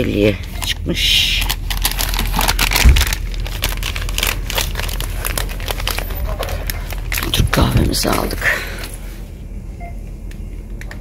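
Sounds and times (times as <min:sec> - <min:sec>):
steady low hum: 0:00.0 - 0:11.0
packaging crinkling: 0:00.4 - 0:09.0.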